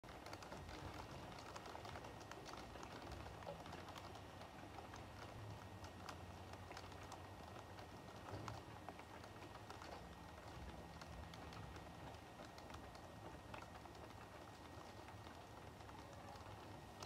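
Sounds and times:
rain falling: 0.0s - 17.0s.

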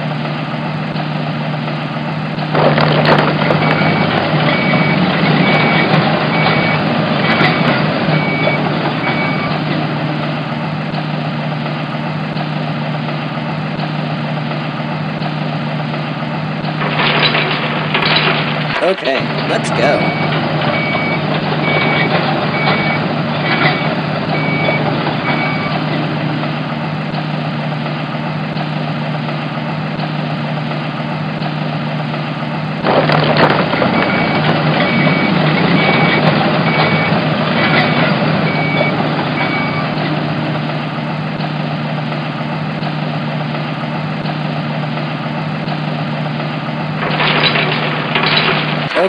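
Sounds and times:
reversing beeper: 3.4s - 9.8s, 18.9s - 26.0s, 32.9s - 40.2s.

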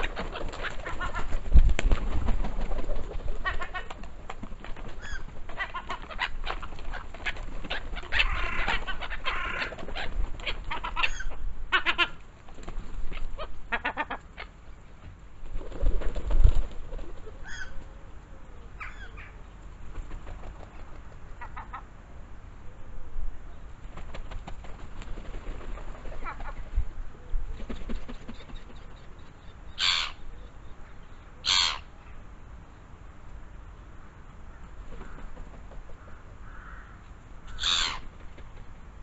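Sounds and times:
wingbeats: 0.0s - 14.0s
gulls calling harshly: 5.0s - 12.2s, 29.8s - 30.3s, 31.4s - 31.9s, 36.0s - 38.1s.

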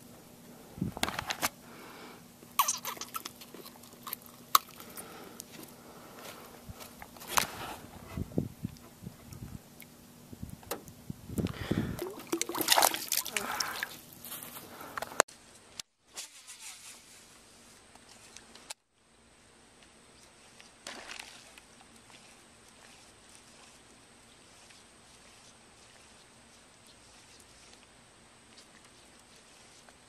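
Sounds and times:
outdoor hush over water: 0.0s - 15.3s, 16.9s - 30.0s
fish splashing in water: 11.8s - 14.1s, 20.8s - 22.9s.

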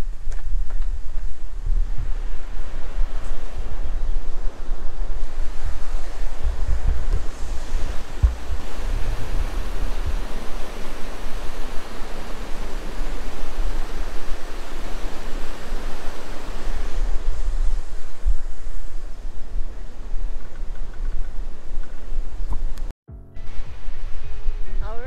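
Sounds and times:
wind buffeting microphone: 0.0s - 25.0s
creek white water rushing: 5.2s - 18.9s.

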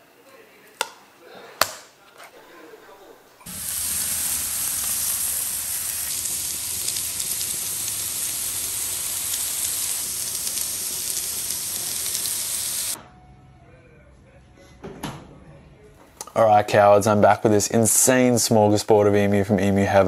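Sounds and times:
meat sizzling on a grill: 3.5s - 13.0s.

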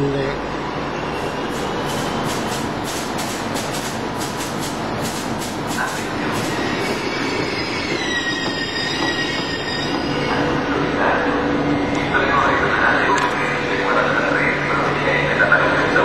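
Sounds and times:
diesel railcar engine running: 0.0s - 16.0s
high wheel squeal: 6.2s - 10.5s.

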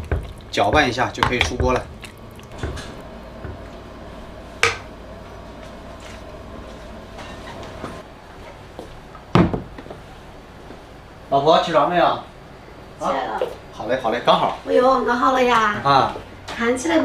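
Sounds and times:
ladle stirring and knocking in pot: 0.0s - 3.7s
faint steady hum: 0.0s - 17.0s.

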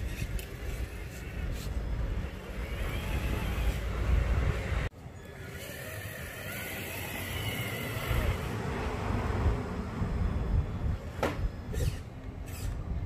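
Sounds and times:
toy car motor and gears whining: 0.0s - 4.3s, 5.1s - 8.5s, 11.7s - 12.9s.

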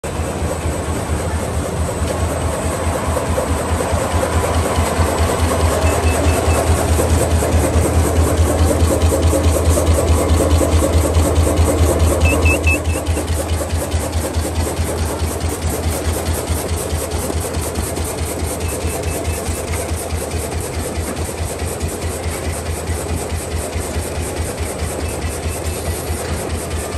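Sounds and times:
machine cycling rhythmically: 0.1s - 26.9s.

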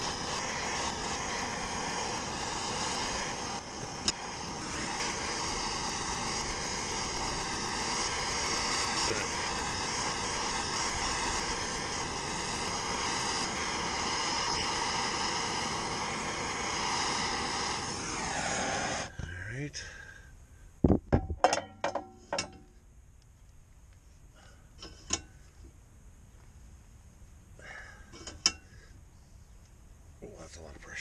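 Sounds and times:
gas torch roaring hiss: 0.0s - 21.0s, 27.5s - 29.4s.

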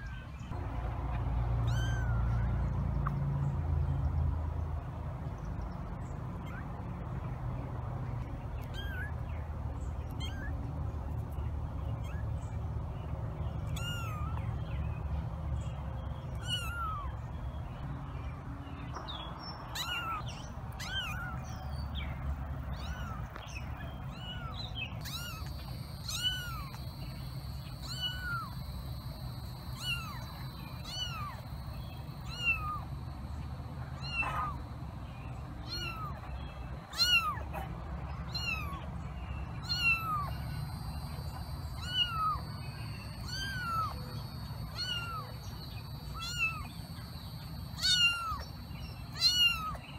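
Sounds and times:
kitten mewing: 1.6s - 2.4s, 13.8s - 14.3s, 24.2s - 26.8s, 27.8s - 28.6s, 35.7s - 36.1s, 36.9s - 37.6s, 41.8s - 42.4s, 43.2s - 43.9s, 44.8s - 45.3s, 46.2s - 46.6s, 47.8s - 48.4s, 49.2s - 49.8s.

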